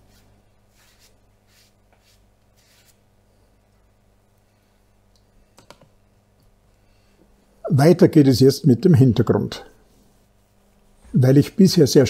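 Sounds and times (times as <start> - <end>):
brush swishing across paper: 0.0 - 3.0.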